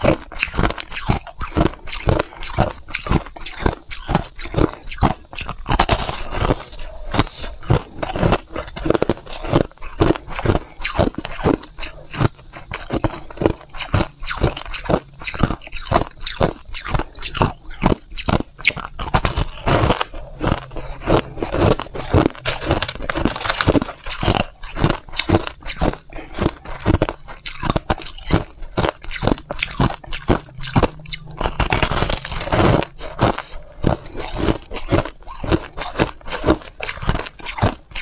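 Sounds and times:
crunching of freezer frost: 0:00.0 - 0:38.0.

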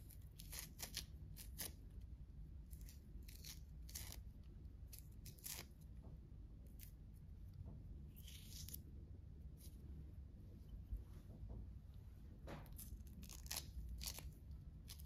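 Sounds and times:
fruit peel tearing: 0:00.0 - 0:01.8, 0:02.6 - 0:05.9, 0:08.1 - 0:08.9, 0:12.6 - 0:15.0
low steady hum: 0:00.0 - 0:15.0.

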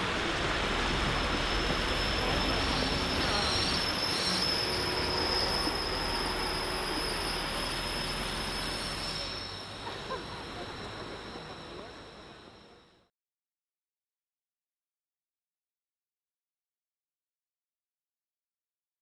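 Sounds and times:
coach tyres hissing on wet street: 0:00.0 - 0:11.8.

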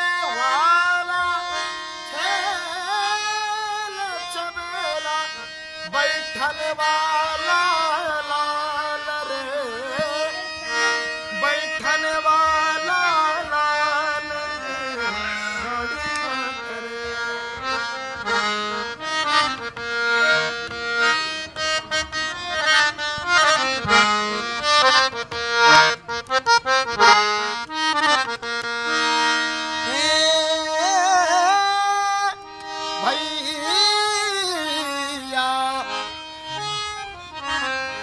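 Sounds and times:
man singing a devotional song: 0:00.0 - 0:21.4, 0:29.3 - 0:38.0
harmonium playing a melody: 0:00.0 - 0:38.0.

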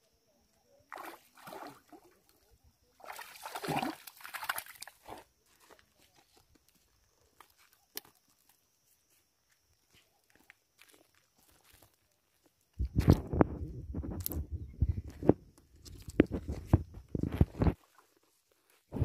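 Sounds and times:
fish splashing in water: 0:03.0 - 0:05.0.

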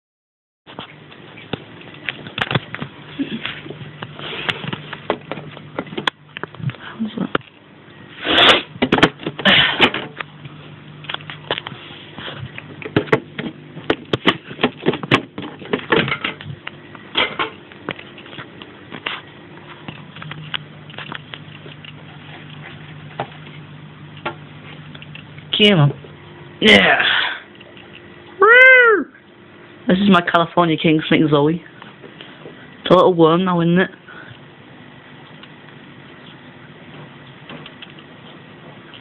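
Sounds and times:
low steady hum: 0:00.7 - 0:39.0
handling rustling and knocks: 0:08.8 - 0:25.4.

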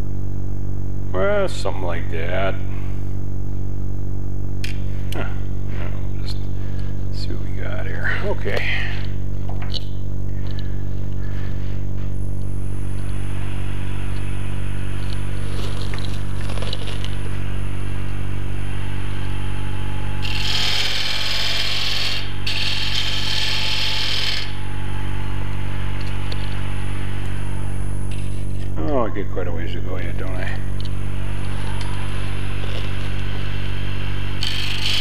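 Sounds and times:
wood lathe motor humming: 0:20.2 - 0:24.6, 0:34.4 - 0:35.0.

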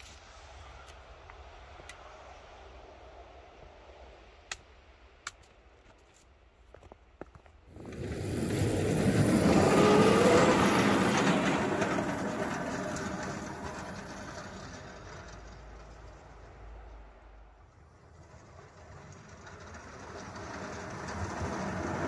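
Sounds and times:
train passing over rails: 0:06.6 - 0:22.0
snow spraying off plow: 0:07.7 - 0:17.2, 0:17.9 - 0:22.0.

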